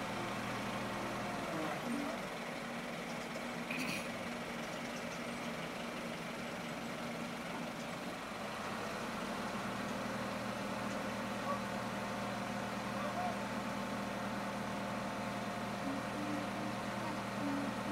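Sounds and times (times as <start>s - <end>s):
truck engine running: 0.0s - 17.9s.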